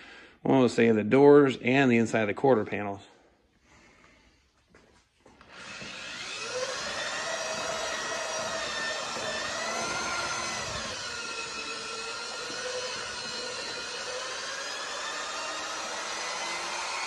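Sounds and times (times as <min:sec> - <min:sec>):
electric drill mixing paint: 0:05.3 - 0:17.0.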